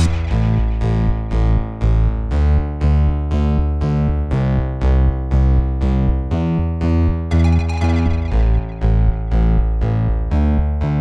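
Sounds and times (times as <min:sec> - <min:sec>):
steady bass: 0:00.0 - 0:11.0
repeated keyboard notes: 0:07.3 - 0:09.6.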